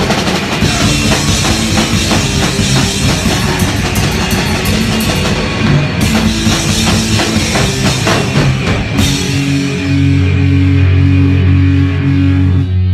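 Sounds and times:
fast drumming with cymbal crashes: 0.0 - 10.3
rock band playing live: 0.0 - 12.9.

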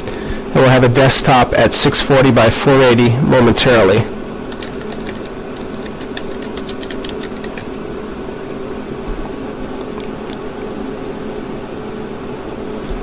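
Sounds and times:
background hum and hiss: 0.0 - 13.0.

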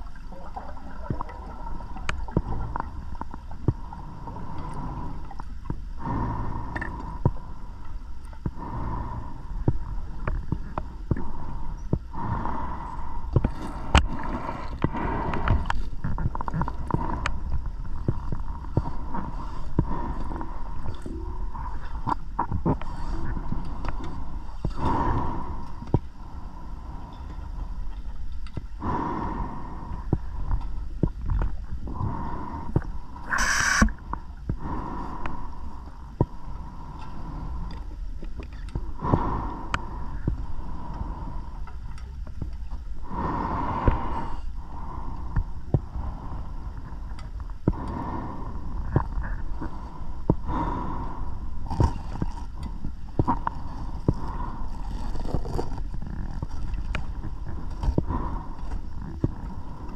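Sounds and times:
diver breathing hiss underwater: 32.1 - 34.1.

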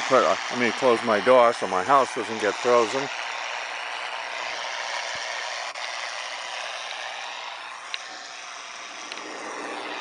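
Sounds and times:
radio noise hiss: 0.0 - 3.4, 6.8 - 10.0.

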